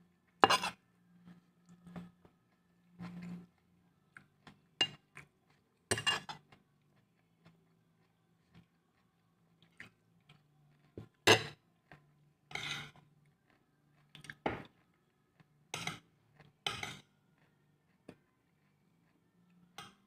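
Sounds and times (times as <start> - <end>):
faint low hum: 0.0 - 20.0
clatters and scrapes on plate: 0.4 - 2.1, 5.9 - 6.6, 12.5 - 13.0, 15.7 - 17.1.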